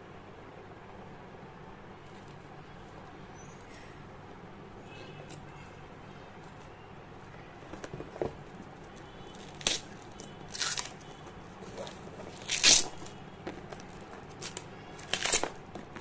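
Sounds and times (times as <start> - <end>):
plastic shrink-wrap tearing: 8.8 - 16.0.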